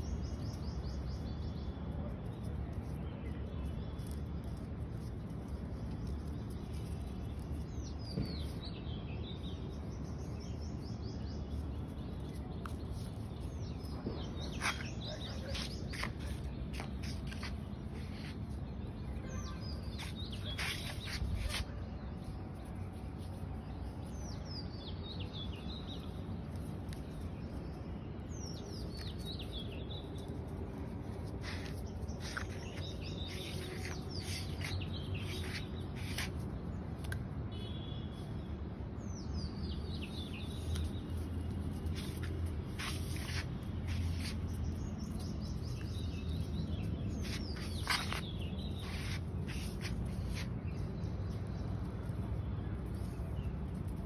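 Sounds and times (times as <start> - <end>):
bird song phrase: 12.2 - 22.7.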